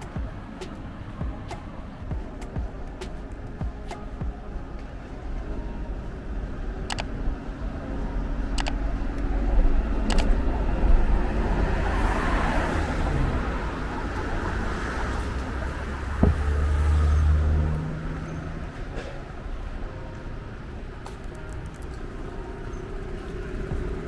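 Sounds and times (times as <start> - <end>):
deep engine hum: 0.0 - 18.7
cars and bus passing: 0.0 - 24.0.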